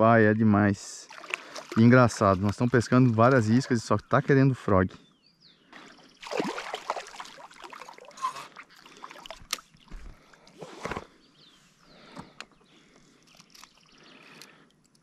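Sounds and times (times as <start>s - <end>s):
fish splashing in water: 1.1s - 3.4s, 6.2s - 9.9s.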